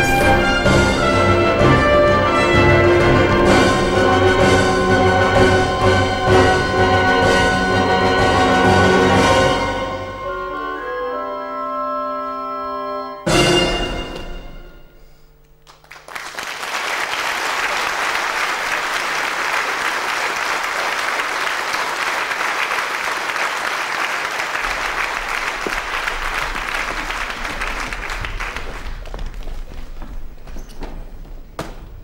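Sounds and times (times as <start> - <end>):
orchestra notes: 0.0 - 15.6
audience applauding: 15.6 - 30.2.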